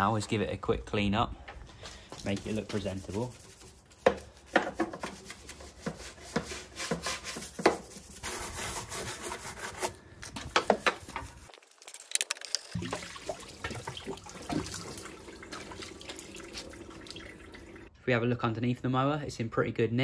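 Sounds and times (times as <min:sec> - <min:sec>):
hand brush scrubbing metal: 0:02.1 - 0:11.5, 0:13.6 - 0:17.0.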